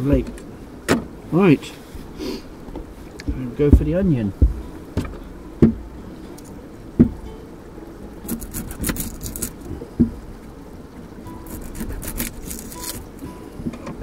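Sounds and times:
knife knocking on wooden board: 0:03.3 - 0:05.9
onion skin crackling: 0:08.2 - 0:09.7, 0:11.4 - 0:13.2.

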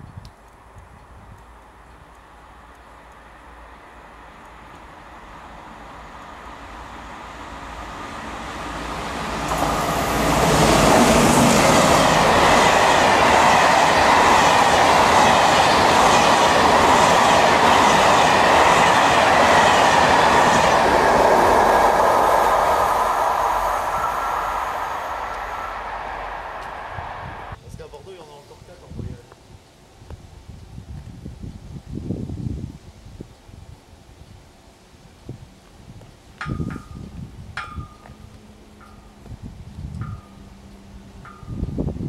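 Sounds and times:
passenger train passing: 0:02.3 - 0:27.6
train wheels clattering on rails: 0:09.4 - 0:27.0.

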